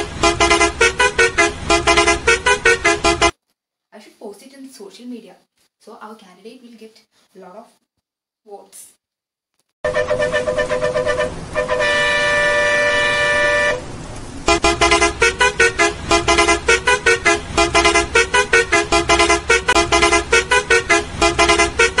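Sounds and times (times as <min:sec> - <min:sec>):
rapid horn toots at shifting pitches: 0:00.0 - 0:03.4, 0:09.8 - 0:13.9, 0:14.5 - 0:22.0
vehicle horn blast: 0:00.0 - 0:03.4, 0:09.8 - 0:13.9, 0:14.5 - 0:22.0.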